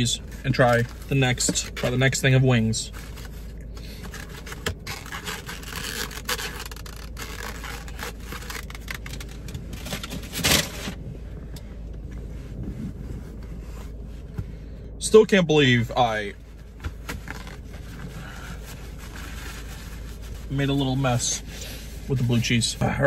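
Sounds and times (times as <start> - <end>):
plastic rubbing against fabric: 0.0 - 11.0, 12.1 - 14.4, 16.2 - 23.0
plastic rustle: 0.0 - 11.0, 16.4 - 22.2
low steady hum: 0.0 - 23.0.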